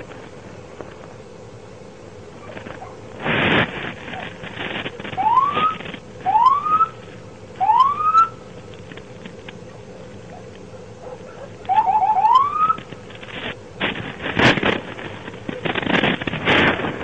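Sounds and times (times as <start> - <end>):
police siren whoops: 5.2 - 6.9, 7.6 - 8.4, 11.7 - 12.8.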